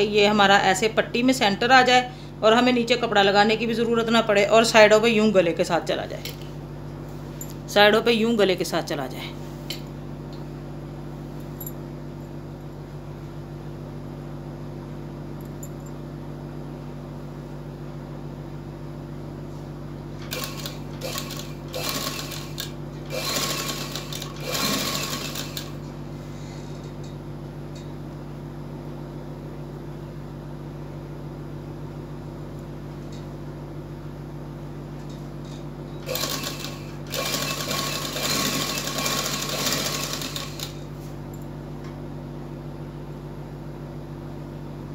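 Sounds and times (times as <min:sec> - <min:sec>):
steady low hum: 0:00.0 - 0:44.9
sewing machine stitching: 0:20.2 - 0:25.8, 0:36.0 - 0:40.8.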